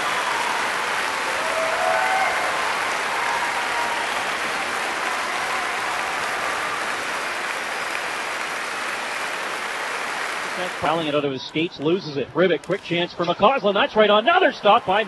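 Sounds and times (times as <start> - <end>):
large crowd applauding: 0.0 - 11.2.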